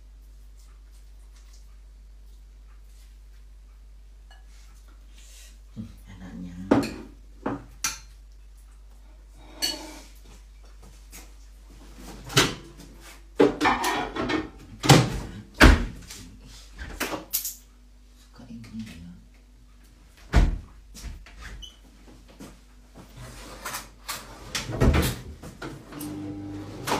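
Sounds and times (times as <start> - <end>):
dishes and utensils clattering: 9.5 - 10.2, 13.4 - 15.0.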